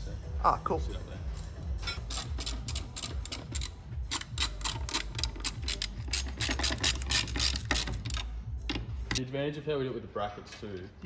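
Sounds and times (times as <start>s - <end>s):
socket ratchet clicking: 1.9s - 9.2s.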